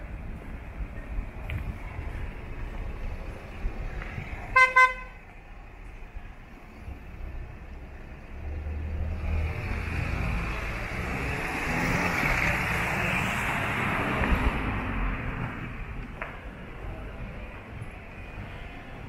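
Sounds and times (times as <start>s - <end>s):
car passing by: 8.3s - 16.3s.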